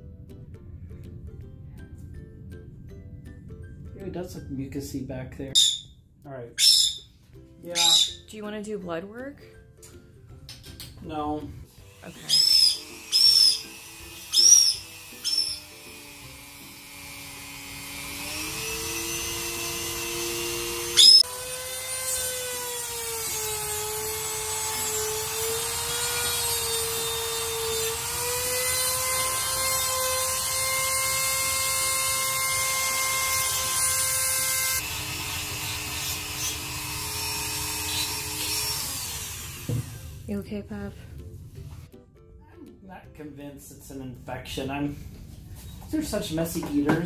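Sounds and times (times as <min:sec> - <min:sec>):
parrot squawking: 0:05.6 - 0:06.0, 0:06.6 - 0:07.1, 0:07.7 - 0:08.4, 0:12.0 - 0:15.7, 0:21.0 - 0:21.2
rotary tool grinding whine: 0:11.7 - 0:40.2.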